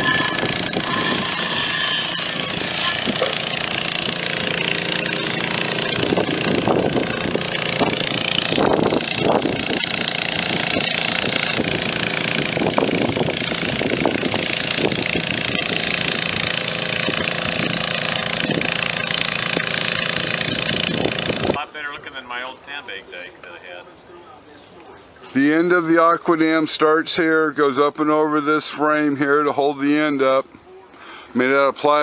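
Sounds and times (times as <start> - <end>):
engine-driven water pump running: 0.0 - 21.7.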